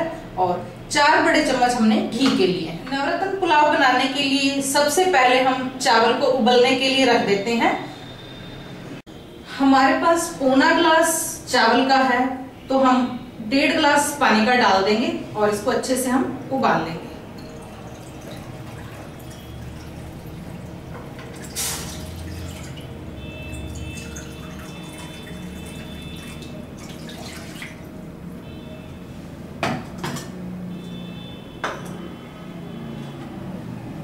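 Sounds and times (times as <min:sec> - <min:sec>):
water pouring: 0:17.2 - 0:28.0.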